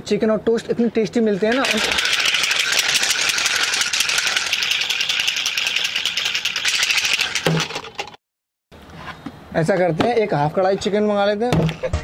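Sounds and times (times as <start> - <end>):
plastic shaker bottle rattling: 1.4 - 8.2.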